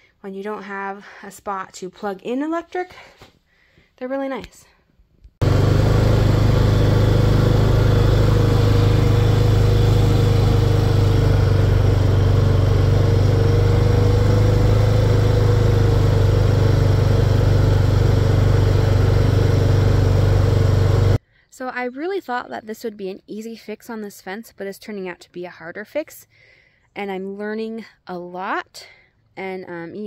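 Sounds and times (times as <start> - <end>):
atv engine running: 5.4 - 21.2.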